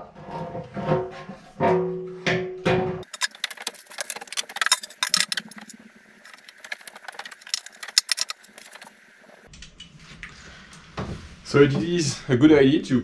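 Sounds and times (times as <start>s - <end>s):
metal tank clinking and rattling: 1.6s - 8.9s.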